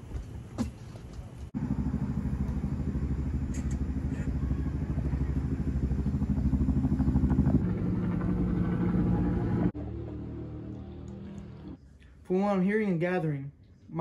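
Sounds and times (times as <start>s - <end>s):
vehicle engine running: 1.6s - 11.8s.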